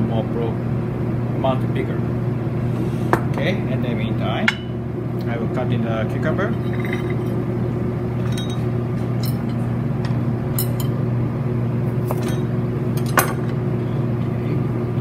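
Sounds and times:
low machine hum: 0.0 - 15.0
bowls clinking: 6.6 - 7.4, 8.2 - 9.6.

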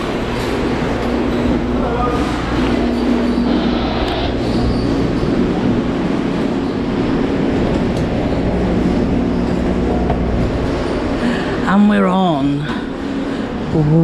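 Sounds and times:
low hum: 0.0 - 14.0
ship machinery rushing drone: 0.0 - 14.0.

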